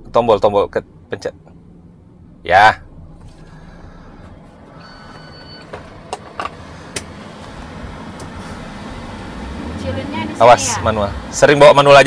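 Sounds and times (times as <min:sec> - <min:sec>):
car engine and air conditioning hum: 0:00.0 - 0:12.0
short electronic beep: 0:04.8 - 0:05.7.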